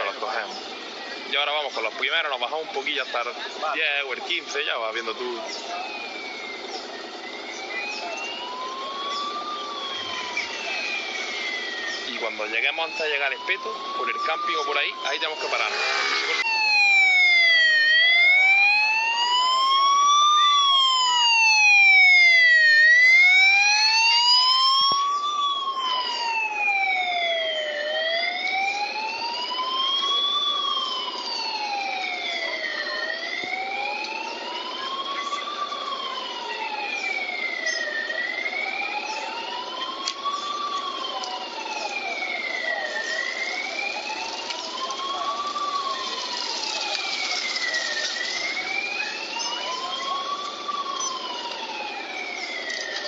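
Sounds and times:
police siren wailing: 0.0s - 53.0s.

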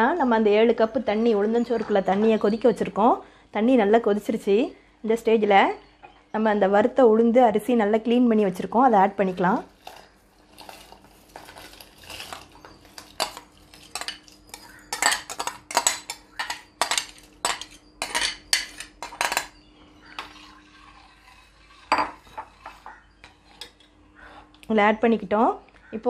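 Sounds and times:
spoon scraping ceramic bowl: 9.6s - 24.6s.

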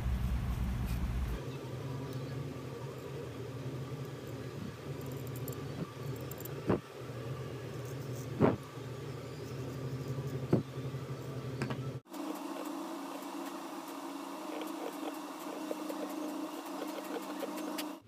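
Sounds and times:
steady low hum: 0.0s - 18.0s
needle tool scraping stone: 14.5s - 18.0s.

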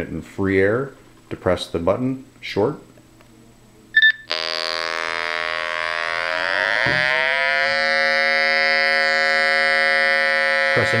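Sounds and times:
electronic buzz tone: 4.0s - 11.0s.

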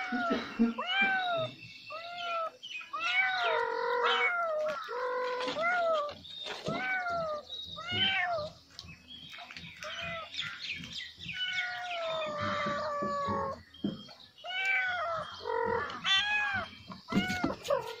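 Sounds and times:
cat meowing: 0.0s - 8.5s, 11.4s - 13.6s, 14.4s - 17.9s.

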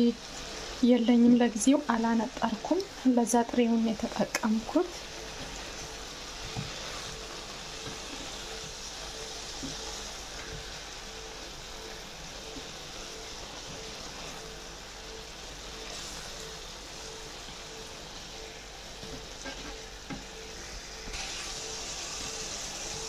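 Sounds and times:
food sizzling in a pan: 0.0s - 23.0s
utensil scraping a pan: 19.4s - 19.9s.

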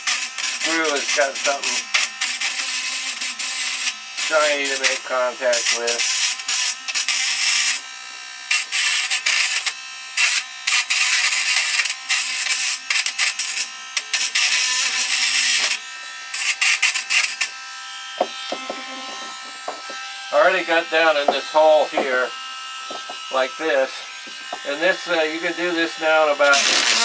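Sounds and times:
rotary grinder grinding metal: 0.0s - 27.0s
grinder motor whine: 10.9s - 27.0s.

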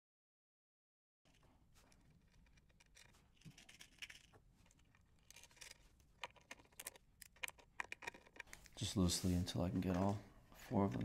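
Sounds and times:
small metallic ticks and clicks: 1.3s - 8.8s.

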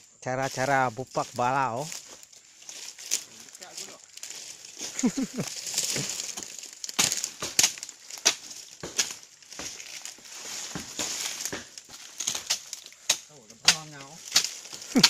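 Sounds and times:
undergrowth rustling and crackling: 0.0s - 15.0s
sharp twig snaps: 11.4s - 15.0s.

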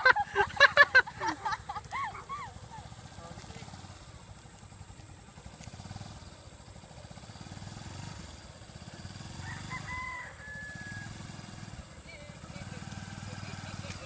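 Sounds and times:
motorcycle engine running: 0.0s - 14.0s
rooster crowing: 9.3s - 11.8s.

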